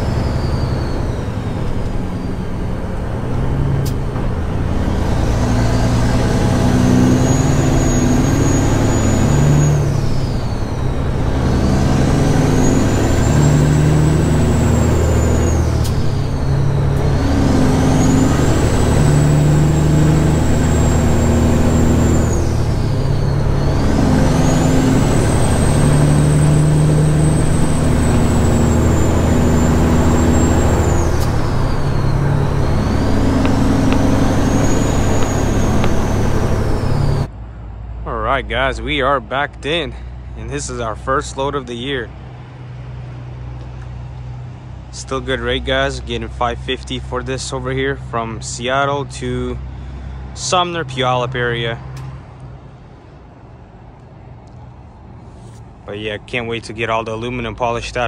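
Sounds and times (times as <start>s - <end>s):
diesel truck engine accelerating: 0.0s - 58.0s
turbo whistle: 20.0s - 37.3s.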